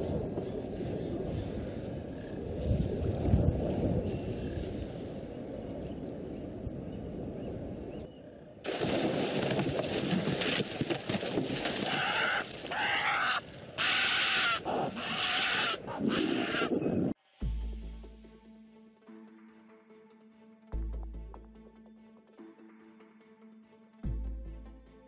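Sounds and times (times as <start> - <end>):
wind rumbling on microphone: 0.0 - 12.0, 13.4 - 17.2
splashing and thrashing in water: 8.7 - 12.8.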